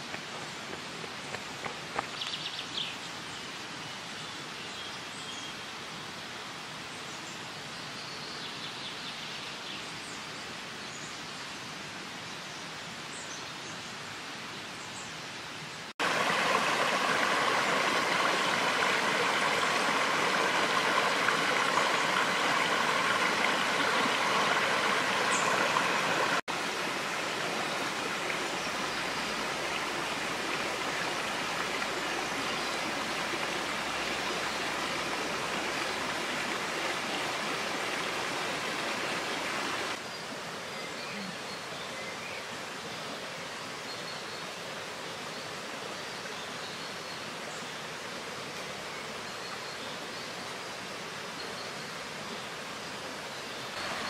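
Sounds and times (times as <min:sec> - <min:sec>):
stream water rushing: 0:16.0 - 0:54.0.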